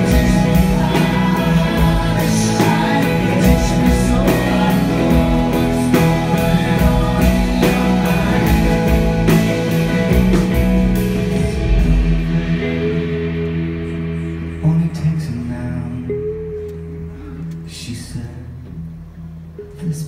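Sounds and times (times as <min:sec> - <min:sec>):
drum kit beat: 0:00.0 - 0:15.1
live rock band playing: 0:00.0 - 0:20.0.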